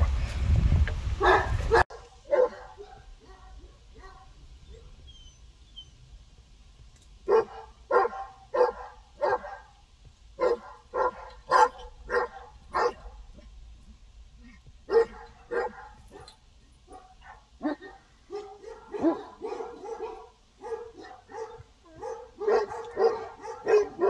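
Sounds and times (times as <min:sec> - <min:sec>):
dog barking: 0:01.2 - 0:04.8, 0:07.3 - 0:09.8, 0:10.4 - 0:13.5, 0:14.4 - 0:24.0.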